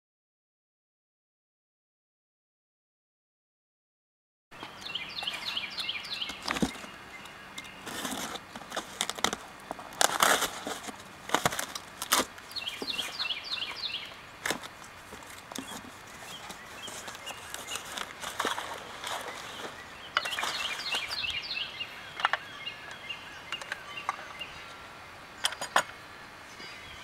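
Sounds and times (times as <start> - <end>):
songbird chirping: 4.6 - 27.0
cardboard box rustling and scraping: 6.2 - 7.0, 7.8 - 21.3.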